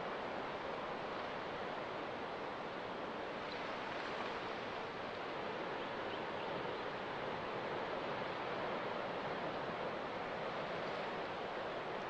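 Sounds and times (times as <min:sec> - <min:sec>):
waves breaking on shore: 0:06.8 - 0:12.0.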